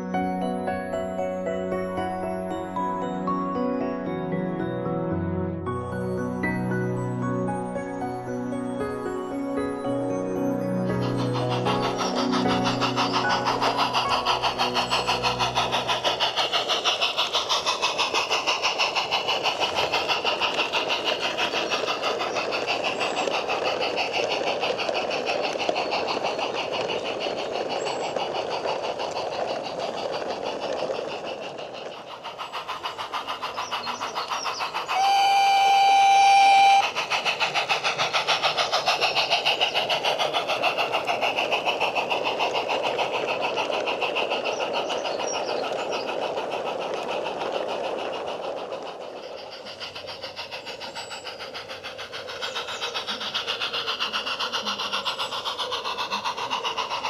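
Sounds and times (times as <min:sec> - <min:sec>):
small steam locomotive chuffing: 0:00.0 - 0:57.0
steam whistle blast: 0:35.0 - 0:36.9.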